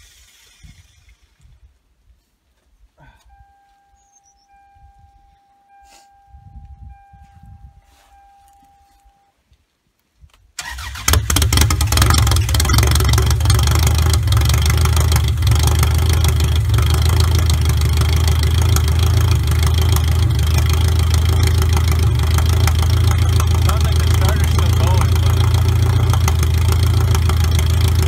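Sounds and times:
car engine starting and running: 0:10.6 - 0:28.0.

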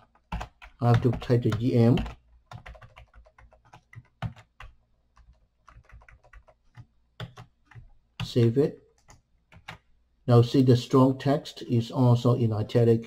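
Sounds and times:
keyboard keys clicking: 0:00.0 - 0:08.4.

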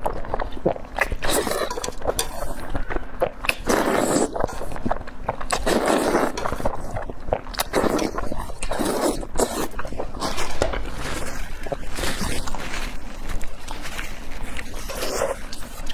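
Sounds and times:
wet slurping of noodles: 0:01.0 - 0:02.7, 0:03.5 - 0:04.8, 0:05.5 - 0:12.5.

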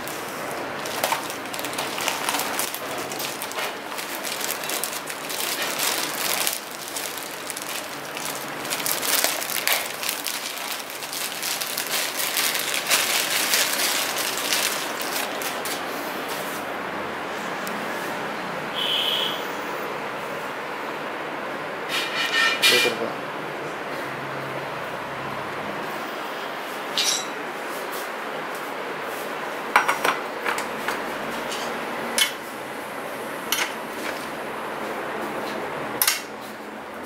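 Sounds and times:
plastic wrapping crinkling: 0:00.0 - 0:16.7.

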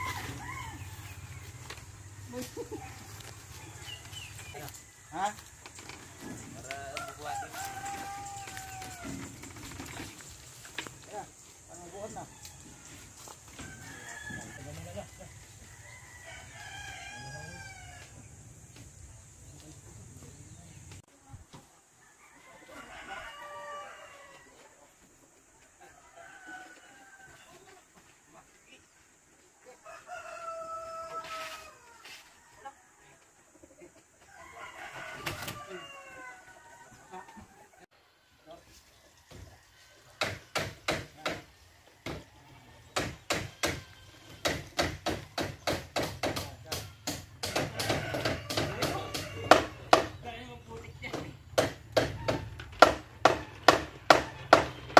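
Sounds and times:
faint rooster call: 0:00.0 - 0:01.2, 0:06.4 - 0:09.4, 0:21.6 - 0:29.0, 0:29.6 - 0:45.8, 0:46.4 - 0:50.2
rooster crowing: 0:00.0 - 0:01.4, 0:06.4 - 0:09.4, 0:12.0 - 0:18.2, 0:22.0 - 0:24.9, 0:25.8 - 0:27.7, 0:29.8 - 0:33.3, 0:34.2 - 0:38.6, 0:47.1 - 0:50.2
hand tool striking wood: 0:40.2 - 0:42.3, 0:43.0 - 0:50.1, 0:51.1 - 0:54.9.

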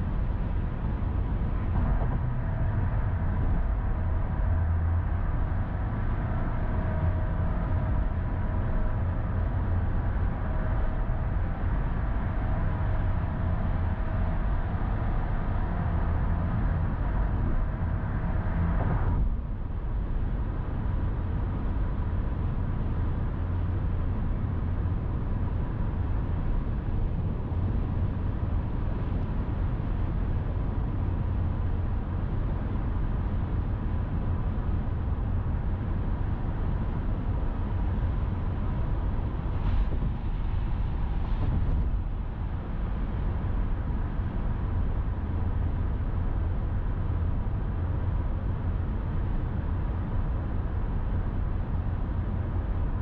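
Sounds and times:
car road noise at highway speed: 0:00.0 - 0:53.0.

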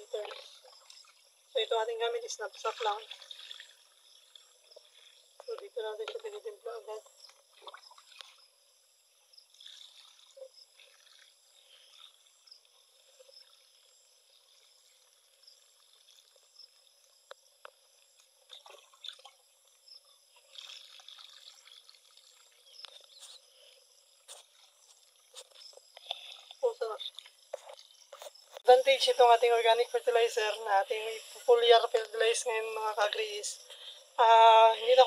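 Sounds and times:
liquid pouring and trickling: 0:02.7 - 0:04.4, 0:09.5 - 0:12.6, 0:20.4 - 0:23.4.

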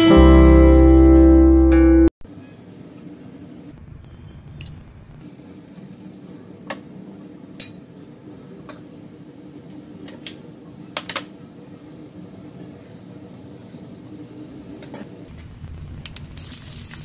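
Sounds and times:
steady low hum: 0:02.4 - 0:17.0
seeds popping in hot oil: 0:15.3 - 0:17.0.

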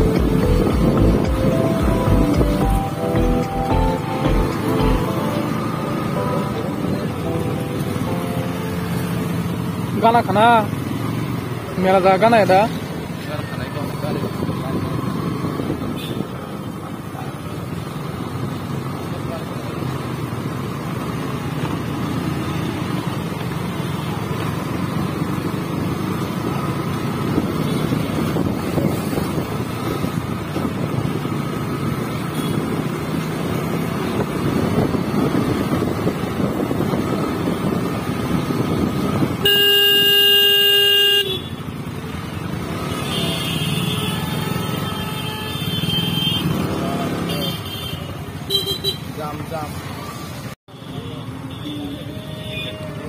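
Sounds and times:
motorcycle engine: 0:00.0 - 0:49.4
wind and road noise: 0:00.0 - 0:50.6
loud horn blast: 0:39.4 - 0:41.5.

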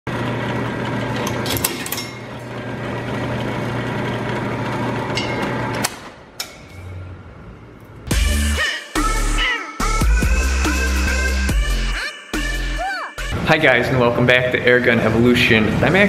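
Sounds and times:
drill press motor hum: 0:00.1 - 0:06.2.

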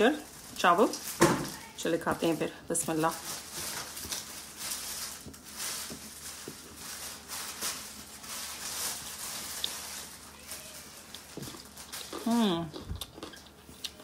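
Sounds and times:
wet chewing: 0:11.0 - 0:14.0.

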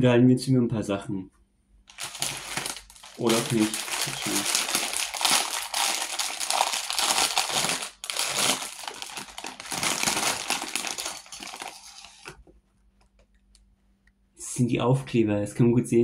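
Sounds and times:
plastic packaging crinkling: 0:01.9 - 0:12.5.

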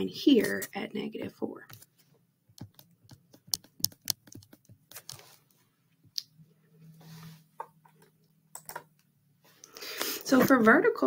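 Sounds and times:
stylus tapping on tablet screen: 0:02.5 - 0:05.2.

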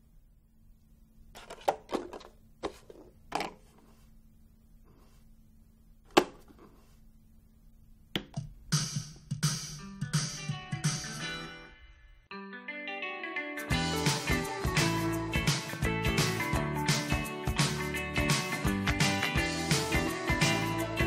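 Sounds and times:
guitar music: 0:12.3 - 0:21.0.

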